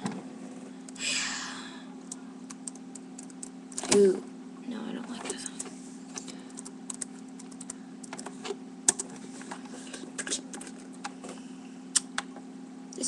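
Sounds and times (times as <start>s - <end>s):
steady low hum: 0.0s - 13.0s
typing on computer keyboard: 2.5s - 3.9s, 6.5s - 8.3s.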